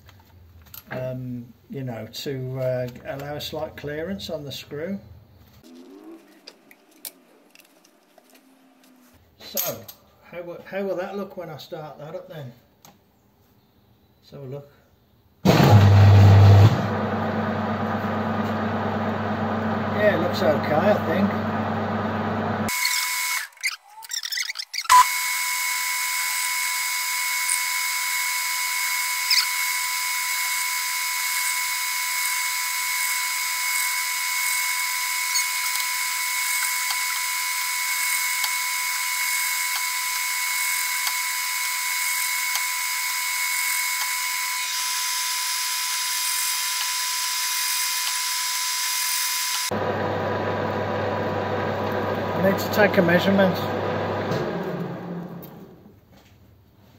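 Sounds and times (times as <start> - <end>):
metal lathe whining: 24.8 - 55.1.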